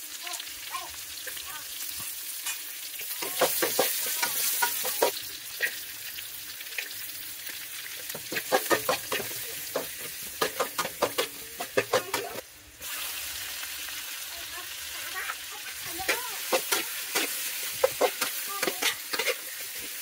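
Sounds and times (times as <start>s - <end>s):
vegetables sizzling in hot oil: 0.0s - 20.0s
metal ladle scraping wok: 15.6s - 20.0s.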